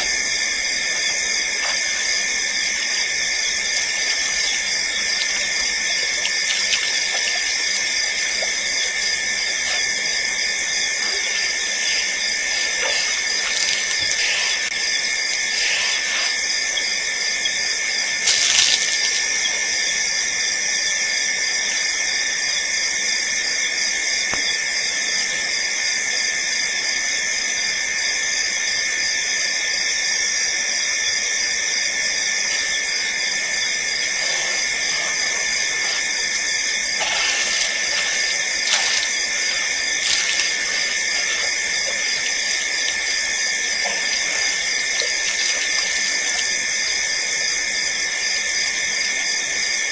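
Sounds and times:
crickets calling: 0.0 - 49.9.

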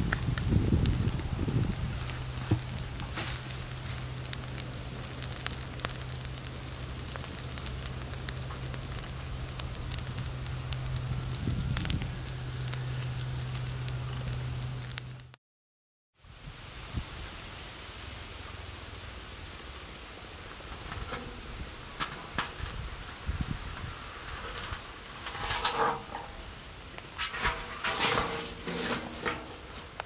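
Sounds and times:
steady low hum: 0.0 - 15.3
dry leaves burning and crackling: 0.0 - 15.4, 16.2 - 30.0
smoky hiss: 0.0 - 15.4, 16.2 - 30.0.

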